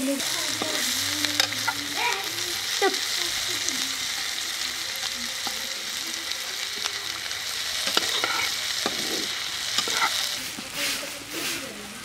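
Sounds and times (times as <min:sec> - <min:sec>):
onions sizzling in oil: 0:00.0 - 0:12.0
spatula scraping and tapping pan: 0:07.8 - 0:11.7.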